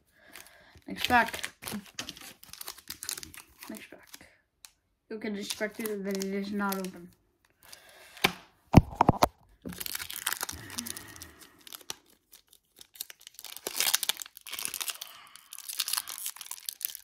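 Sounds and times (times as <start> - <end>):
foil wrapper tearing and crinkling: 0.9 - 4.2, 5.4 - 7.0, 8.8 - 17.0.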